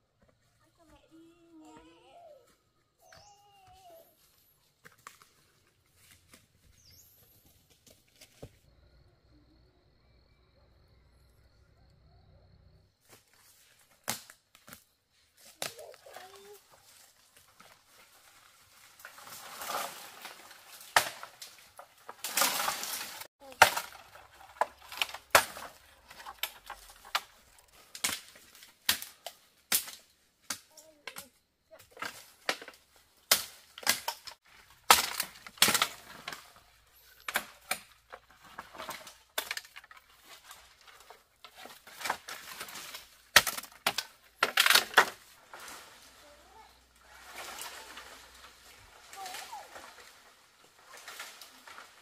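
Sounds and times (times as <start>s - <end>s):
rustling of brush and leaves: 0.3s - 8.7s, 12.9s - 52.0s
dry sticks snapping: 24.6s - 31.2s, 32.1s - 36.6s.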